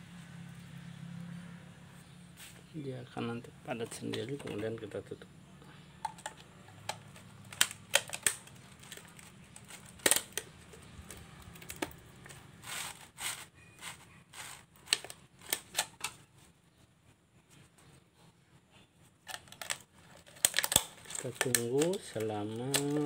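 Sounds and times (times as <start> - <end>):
plastic bottle crinkling: 6.0 - 16.2, 19.2 - 23.0.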